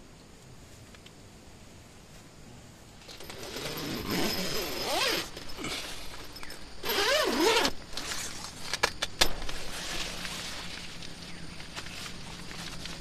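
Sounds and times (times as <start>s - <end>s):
zipper drawn open: 3.0s - 8.4s.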